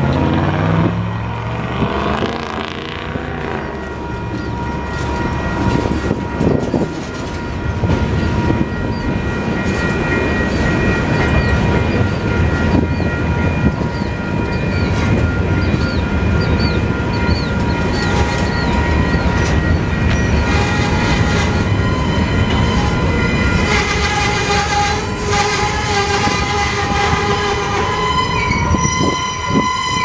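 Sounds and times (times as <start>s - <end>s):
freight cars rumbling on rails: 0.0s - 30.0s
wheel squeal: 15.6s - 30.0s.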